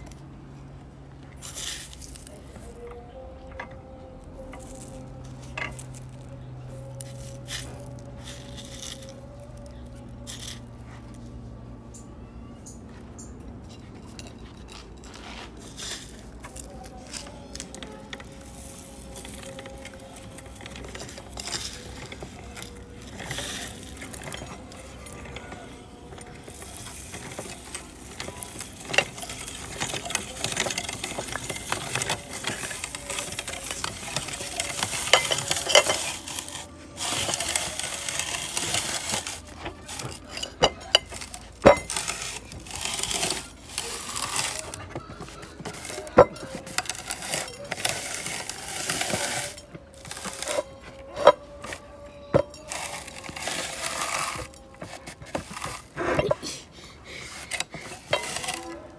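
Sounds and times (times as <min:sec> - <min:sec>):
grinder crunching rice husks: 0:01.4 - 0:11.5, 0:14.0 - 0:58.9
grinder clicks and knocks: 0:13.3 - 0:56.4, 0:57.2 - 0:58.9.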